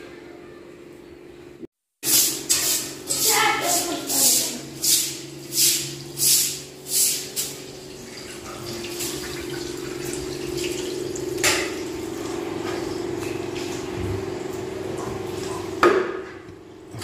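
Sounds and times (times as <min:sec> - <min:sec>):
water running into vessel: 0:02.1 - 0:14.8.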